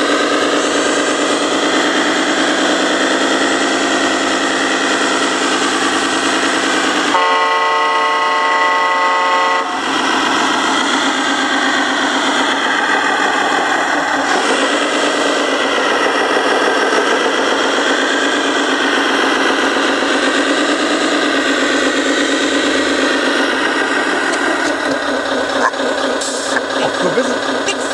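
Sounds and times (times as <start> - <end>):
diesel engine sound: 0.0 - 27.9
air horn chord: 7.1 - 9.8.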